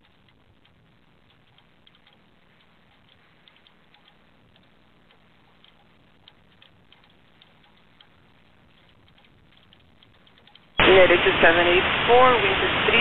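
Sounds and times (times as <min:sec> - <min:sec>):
crackling clicks: 0:00.0 - 0:11.1
radio hiss: 0:10.8 - 0:13.0.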